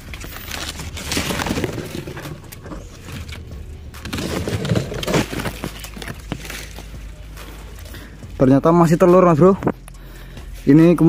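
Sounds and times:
leaves and twigs rustling: 0.0 - 8.4.

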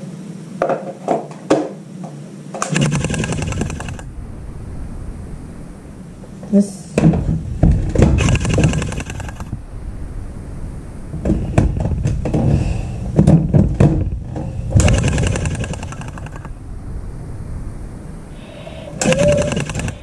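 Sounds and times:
toy train motor and gears clattering: 14.8 - 16.5, 19.0 - 20.0.

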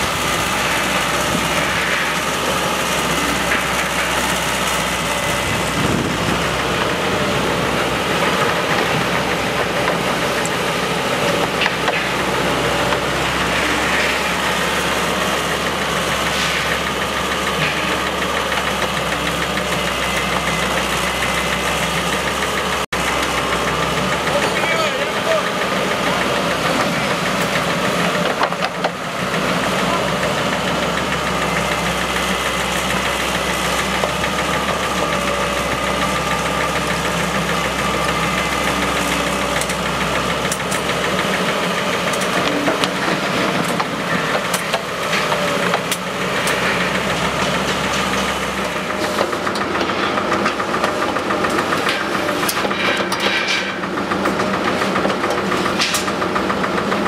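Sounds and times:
excavator diesel engine running: 0.0 - 57.0
knocks and clanks of digging: 30.8 - 56.2.

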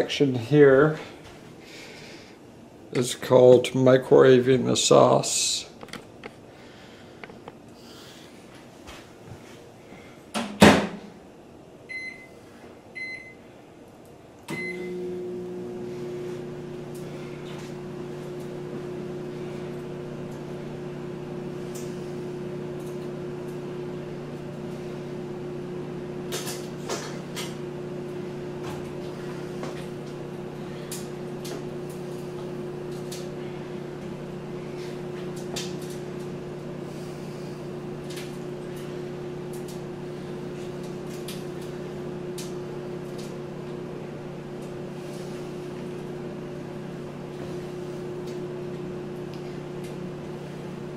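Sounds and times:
microwave running hum: 0.0 - 50.9
microwave keypad beeps: 11.9 - 12.3, 13.0 - 13.4, 14.5 - 15.0.

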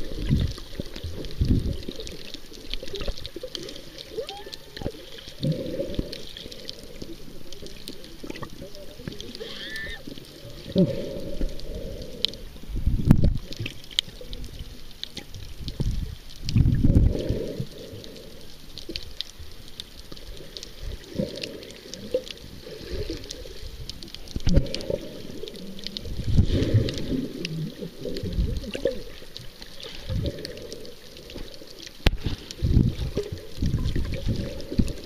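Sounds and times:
faint ticks and crackles: 0.0 - 35.0
underwater water surges: 0.0 - 35.0.

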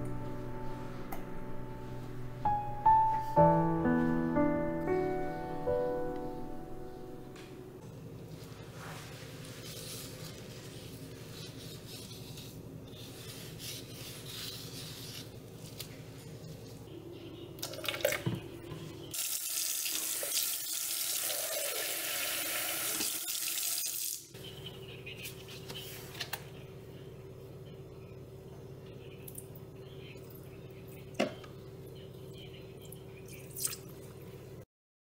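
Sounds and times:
steady low hum: 0.0 - 3.0.

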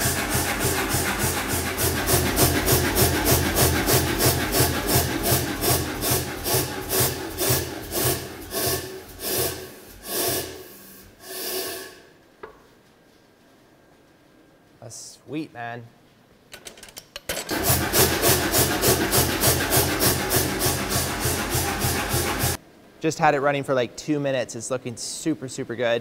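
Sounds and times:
air power hammer pumping: 0.0 - 12.2, 17.5 - 22.6.

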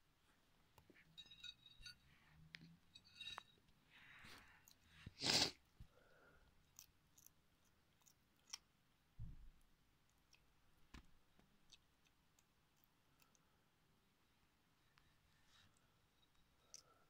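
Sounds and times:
lizard chewing worms: 6.4 - 9.0.

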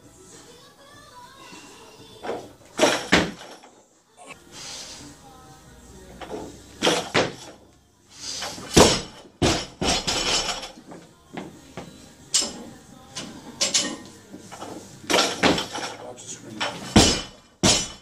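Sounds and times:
barbell thudding onto platform: 2.3 - 3.5, 6.8 - 7.5, 8.7 - 10.6, 15.1 - 15.8, 16.9 - 18.0.

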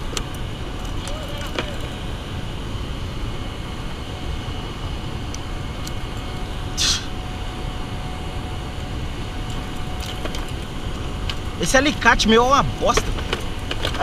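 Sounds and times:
short hiss: 6.8 - 7.1.

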